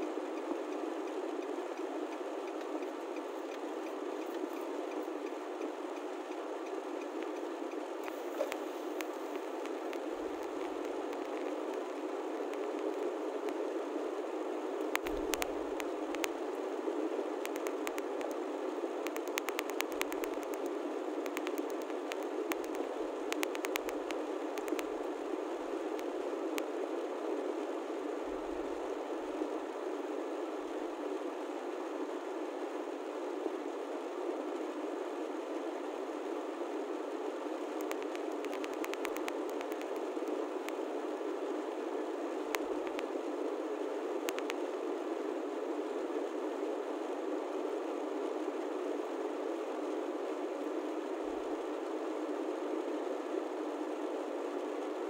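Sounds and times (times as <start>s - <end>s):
faint clicks: 0.4s - 13.6s, 14.8s - 16.4s, 17.4s - 18.4s, 19.0s - 24.9s, 37.8s - 40.8s, 42.5s - 43.1s, 44.2s - 44.6s.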